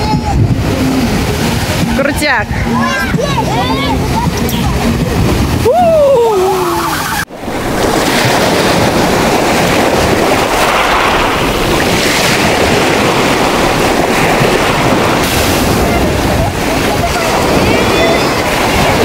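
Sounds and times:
storm waves crashing on concrete: 0:00.0 - 0:19.0
wind on microphone: 0:00.0 - 0:19.0
person exclaiming: 0:05.6 - 0:06.9.

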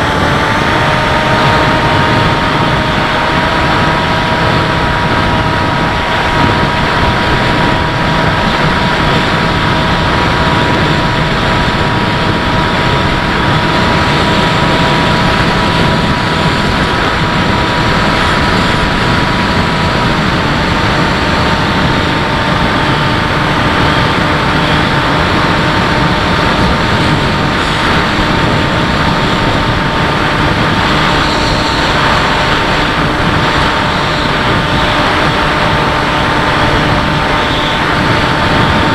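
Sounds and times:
model plane motor whine: 0:00.0 - 0:38.9
rush of air: 0:00.0 - 0:38.9.

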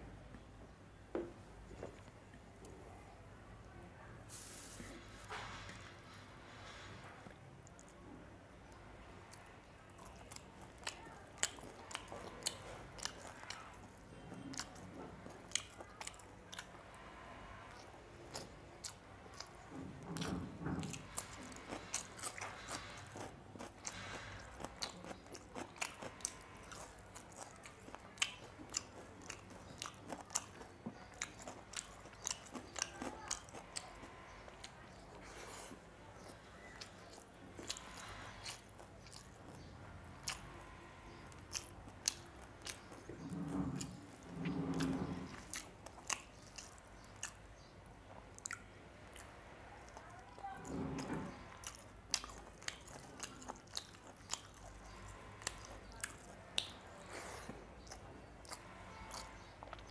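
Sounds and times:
wet mouth clicks chewing: 0:17.8 - 0:40.5, 0:41.1 - 0:47.7, 0:50.7 - 0:59.9
crunching of small fish: 0:18.3 - 0:47.4.

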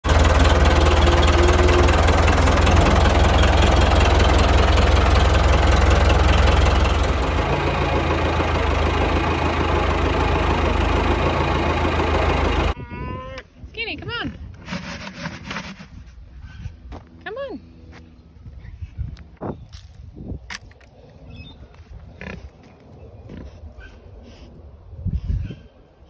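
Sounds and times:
tractor engine rumbling and rattling: 0:00.0 - 0:12.8, 0:13.6 - 0:17.3.

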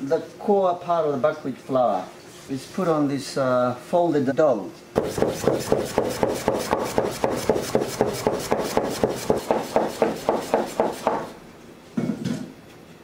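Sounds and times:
knife chopping on wooden board: 0:05.0 - 0:11.4.

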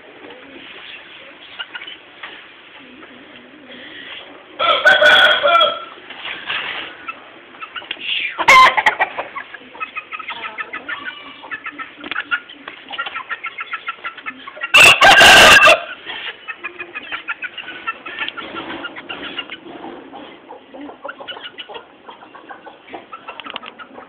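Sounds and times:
chickens clucking: 0:00.0 - 0:24.0
rooster crowing: 0:04.6 - 0:05.9, 0:14.7 - 0:15.9.

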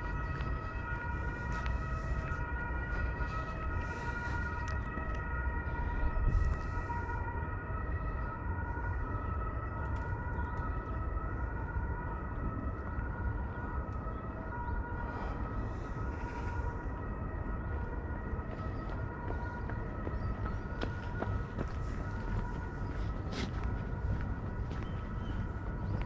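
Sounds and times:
low wind rumble: 0:00.0 - 0:26.0.

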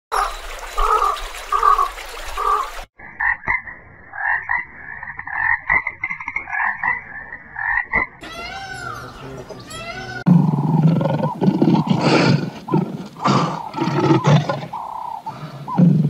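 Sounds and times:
water splashing and rushing: 0:00.1 - 0:03.0
frog croaking: 0:03.1 - 0:09.0, 0:10.2 - 0:16.0.

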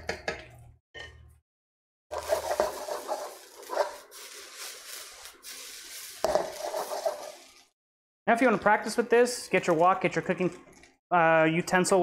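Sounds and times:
spatula scraping in a wok: 0:02.1 - 0:07.7
frying hiss: 0:02.1 - 0:07.8.

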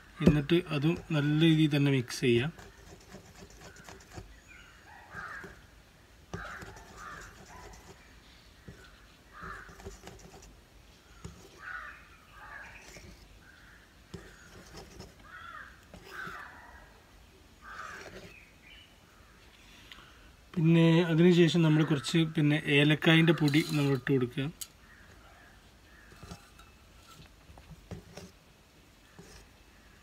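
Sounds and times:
crows cawing: 0:04.9 - 0:05.7, 0:06.3 - 0:07.5, 0:08.6 - 0:10.0, 0:11.1 - 0:16.9, 0:17.6 - 0:18.3.

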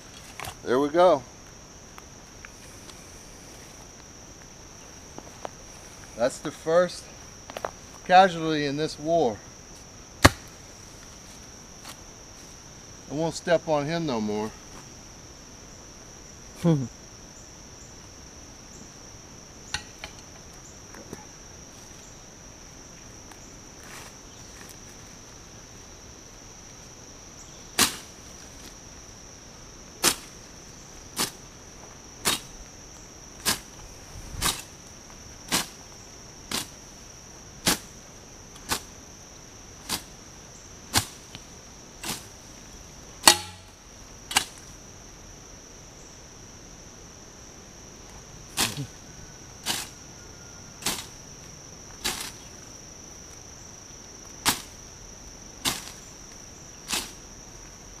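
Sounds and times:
hoe chopping ground: 0:10.2 - 0:10.6, 0:27.8 - 0:28.2, 0:30.0 - 0:30.4, 0:31.2 - 0:31.4, 0:32.2 - 0:32.5, 0:33.4 - 0:33.7, 0:34.4 - 0:34.8, 0:37.6 - 0:37.9, 0:38.6 - 0:39.0, 0:39.8 - 0:40.1, 0:40.9 - 0:41.4, 0:42.0 - 0:42.4, 0:43.2 - 0:44.7, 0:48.6 - 0:48.9, 0:49.6 - 0:49.9, 0:50.8 - 0:51.2, 0:52.0 - 0:52.6, 0:54.4 - 0:54.8, 0:55.6 - 0:56.0, 0:56.8 - 0:57.2
high-pitched insect drone: 0:41.4 - 0:58.0.

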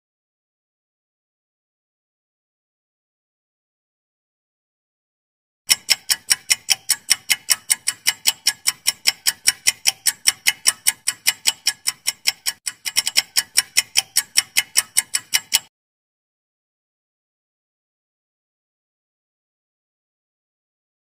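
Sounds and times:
clock ticking: 0:05.7 - 0:15.7.

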